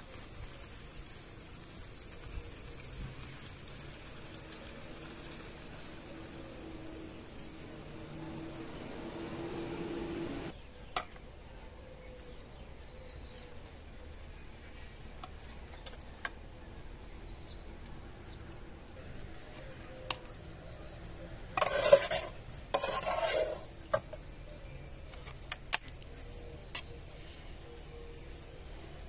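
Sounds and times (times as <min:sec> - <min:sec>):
metal spoon scraping a pot: 0:21.6 - 0:24.2.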